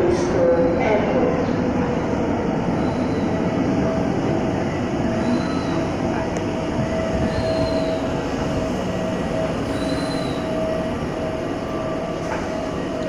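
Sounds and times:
train carriages rumbling and whining: 0.0 - 13.0
high wheel squeals: 2.7 - 3.5, 5.1 - 5.9, 7.1 - 8.2, 9.5 - 10.6.

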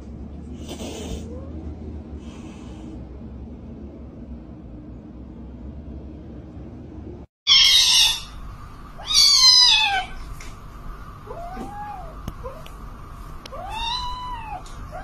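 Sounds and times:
cat meowing: 7.5 - 8.3, 9.0 - 10.2, 13.5 - 15.0
cat yowling: 7.5 - 8.3, 9.0 - 10.2, 11.3 - 12.6, 13.6 - 15.0.

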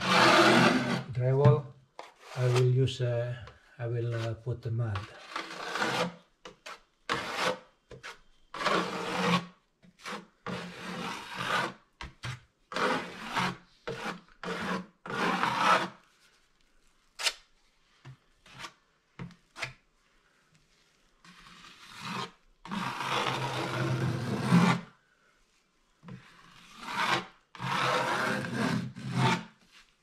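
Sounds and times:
taping knife scraping drywall: 0.0 - 1.3, 2.0 - 2.8, 4.0 - 16.1, 18.4 - 19.8, 21.2 - 24.9, 26.0 - 30.0.

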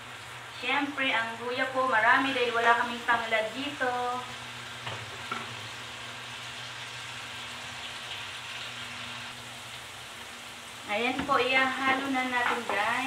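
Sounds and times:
food sizzling in hot oil: 0.0 - 13.0.

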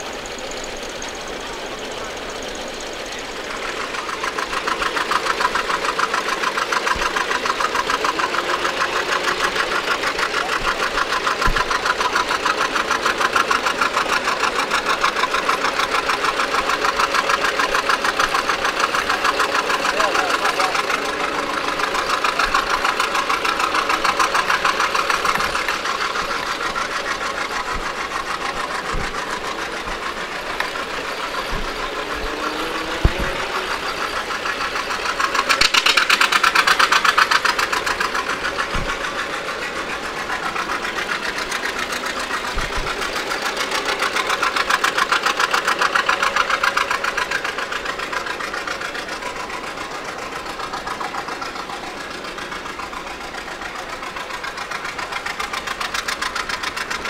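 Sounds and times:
engine idling with knocking beat: 0.0 - 57.0.

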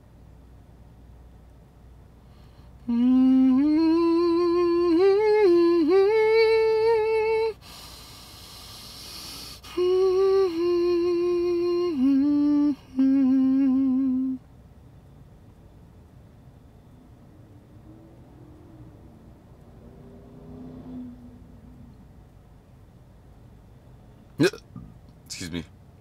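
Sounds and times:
person humming: 2.8 - 7.5, 9.6 - 14.4, 24.4 - 24.6
breathy hiss: 7.6 - 9.8.

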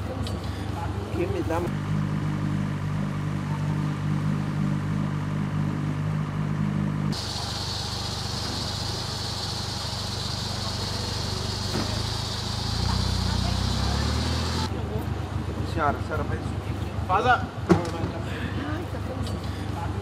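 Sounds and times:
engine running: 0.0 - 17.1
engine idling: 7.0 - 17.0
steady hiss: 7.2 - 14.7.

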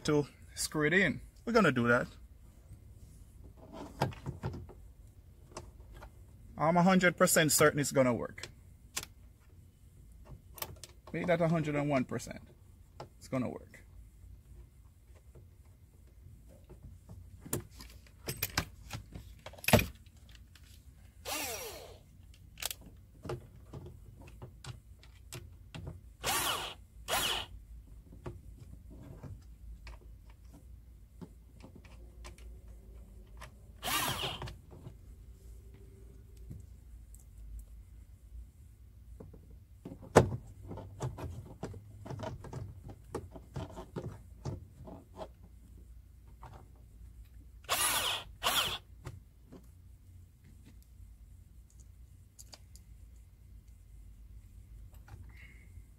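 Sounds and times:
cordless drill driving screws: 21.2 - 22.0, 26.2 - 27.5, 33.8 - 34.5, 47.7 - 48.9.

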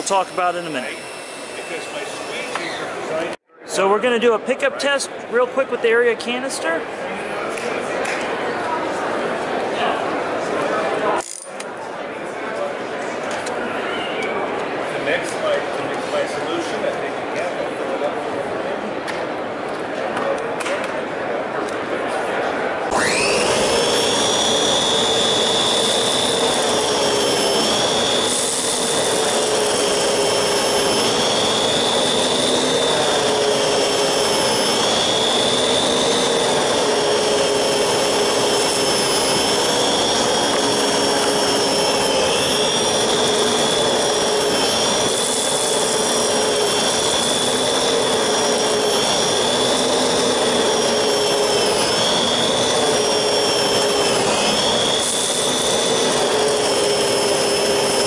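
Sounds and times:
vacuum cleaner whining: 0.0 - 4.0, 22.9 - 58.0.

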